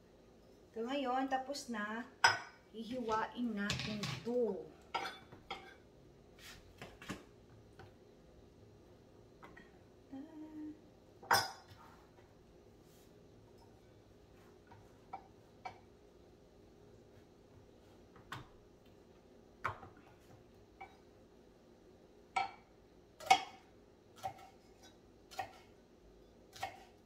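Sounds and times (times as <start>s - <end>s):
knife chopping on cutting board: 24.2s - 24.6s, 25.3s - 25.7s, 26.5s - 27.0s.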